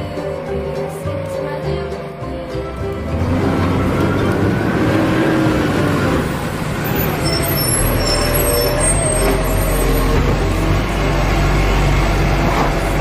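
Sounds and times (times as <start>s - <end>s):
heavy truck engine rumble: 0.0s - 13.0s.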